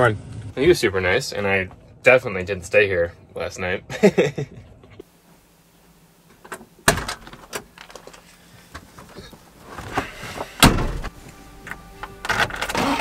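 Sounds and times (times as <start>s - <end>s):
vehicle door shutting: 9.8s - 11.2s
engine starting: 12.6s - 13.0s.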